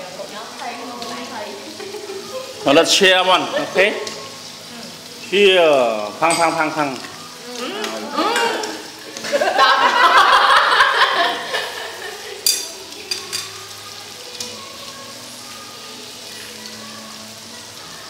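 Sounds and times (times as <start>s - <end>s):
steady background hiss: 0.0s - 18.0s
glasses and dishes clinking: 6.2s - 6.8s, 12.4s - 13.6s
people laughing loudly: 9.1s - 12.4s.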